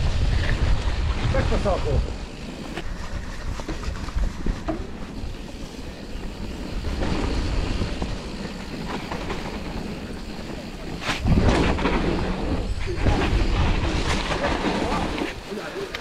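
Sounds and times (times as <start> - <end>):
wind on microphone: 0.0 - 2.2
tyres rumbling on dirt: 0.0 - 16.0
bike clicks and knocks: 2.6 - 12.5, 13.1 - 16.0.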